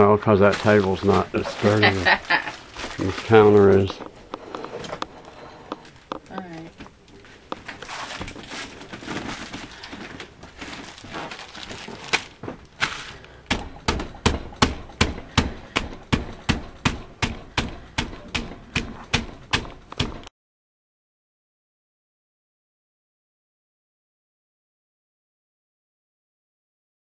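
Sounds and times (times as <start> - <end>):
plastic bag crinkling: 0.4 - 4.0, 7.1 - 13.4.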